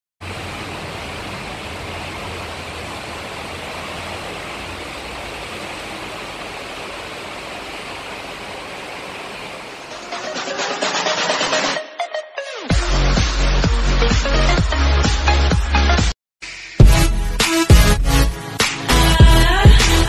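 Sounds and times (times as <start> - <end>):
heavy rain pouring: 0.2 - 11.8.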